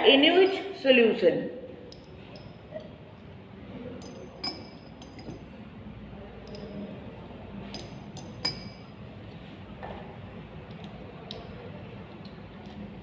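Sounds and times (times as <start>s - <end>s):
glassware clinking: 4.0s - 5.5s, 7.7s - 9.0s.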